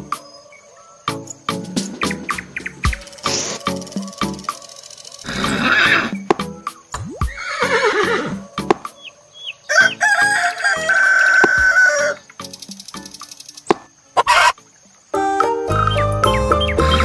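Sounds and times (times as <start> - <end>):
music with steady beat: 1.1 - 4.7, 6.2 - 7.4, 15.2 - 17.0
horse whinnying: 5.2 - 6.2, 7.3 - 8.4
rooster crowing: 7.6 - 12.2.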